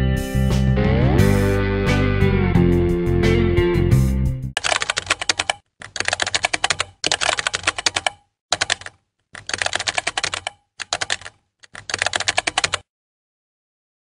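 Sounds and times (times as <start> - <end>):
keyboard typing clicks: 4.6 - 12.9.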